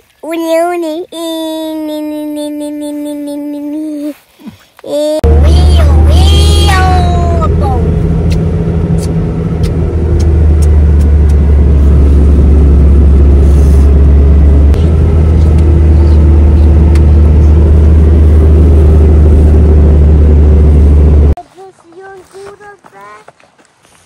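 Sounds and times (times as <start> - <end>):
car engine and tyre rumble: 5.2 - 21.4.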